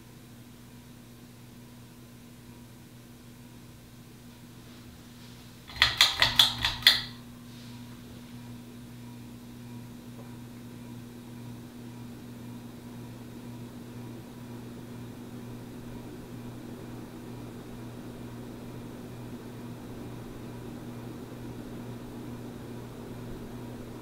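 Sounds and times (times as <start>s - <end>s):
ceiling fan motor humming: 0.0s - 24.0s
pull chain clicking: 5.7s - 7.2s.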